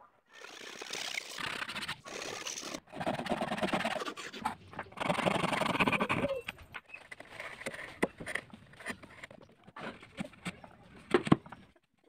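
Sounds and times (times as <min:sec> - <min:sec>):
hand saw cutting wood: 0:00.4 - 0:06.3.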